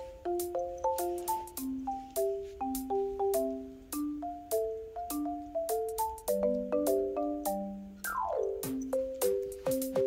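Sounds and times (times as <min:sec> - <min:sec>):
upbeat game-style tune: 0:08.0 - 0:10.0.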